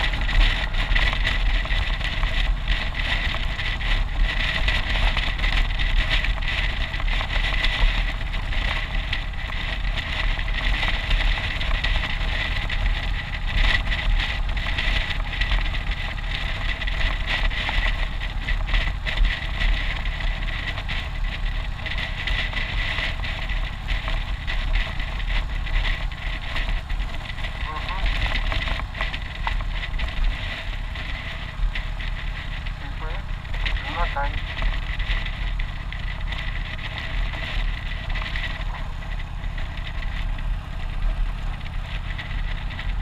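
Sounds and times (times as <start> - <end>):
motorcycle engine running: 0.0 - 43.0
wind noise on microphone: 0.0 - 43.0
thin steady whine: 19.5 - 43.0.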